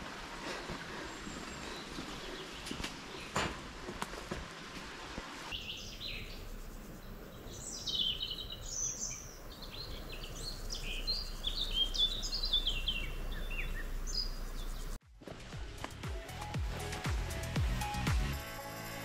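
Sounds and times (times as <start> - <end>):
songbirds chirping: 0.0 - 4.2, 5.2 - 15.0.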